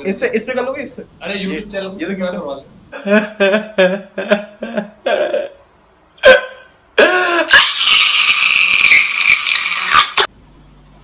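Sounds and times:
man wailing: 0:06.2 - 0:08.0.

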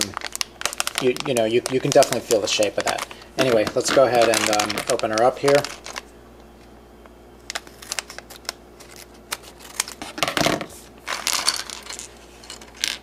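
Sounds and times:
foil packet crinkling: 0:00.0 - 0:06.2, 0:07.4 - 0:13.0.

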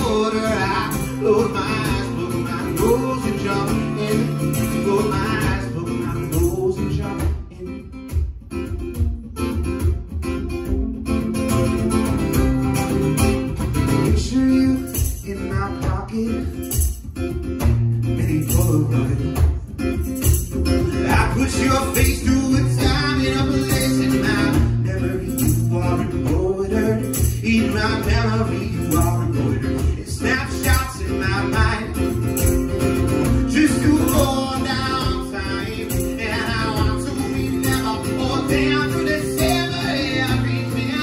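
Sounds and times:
acoustic guitar strumming: 0:00.0 - 0:41.0
kick drum beat: 0:07.2 - 0:11.0.

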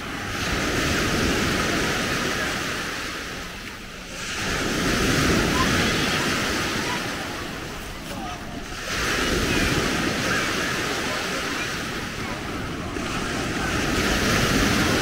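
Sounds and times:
small waves on sandy beach: 0:00.0 - 0:15.0.

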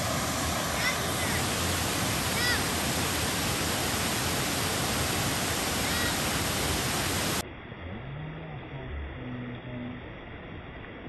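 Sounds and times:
waterfall roaring: 0:00.0 - 0:07.4.

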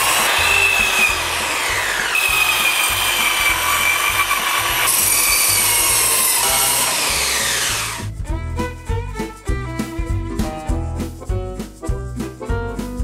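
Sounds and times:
circular saw cutting bone: 0:00.0 - 0:08.1.

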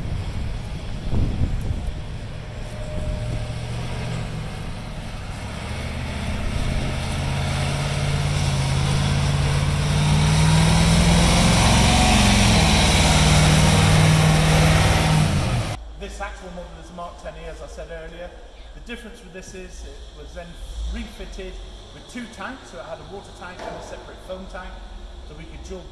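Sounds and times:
diesel truck driving past: 0:00.0 - 0:16.0.

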